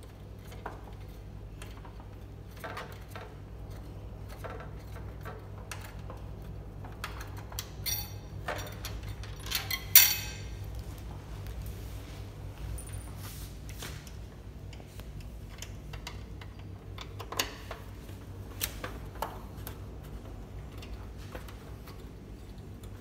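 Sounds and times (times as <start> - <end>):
hex key clicking and scraping: 0.0 - 10.7
steady low hum: 0.0 - 23.0.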